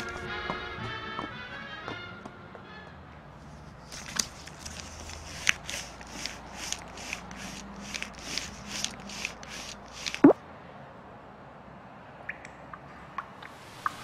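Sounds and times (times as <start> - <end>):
banknote crinkling: 3.5 - 10.3.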